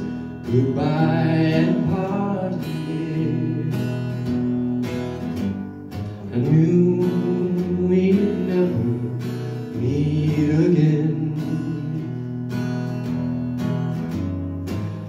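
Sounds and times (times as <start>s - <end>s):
man singing: 0.0s - 4.8s, 6.2s - 12.6s
acoustic guitar strumming: 0.0s - 15.0s.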